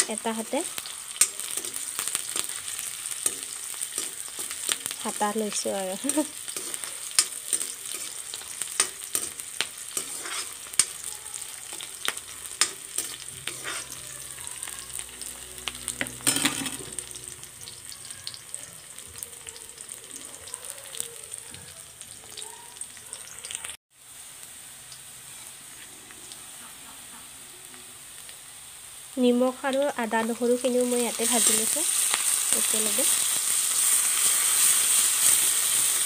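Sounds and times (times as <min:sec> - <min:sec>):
onions sizzling in hot oil: 0:00.0 - 0:36.0
metal ladle scraping pan: 0:06.5 - 0:11.0, 0:11.8 - 0:17.4.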